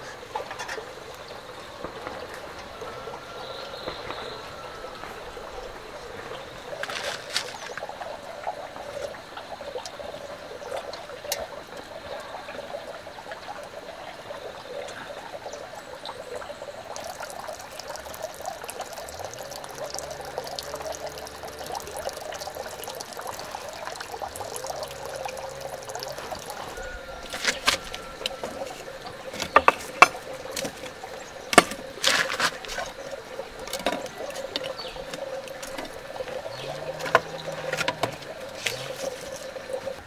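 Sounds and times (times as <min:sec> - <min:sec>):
water trickling: 0:00.0 - 0:40.0
firewood knocking in a stove: 0:29.3 - 0:30.9.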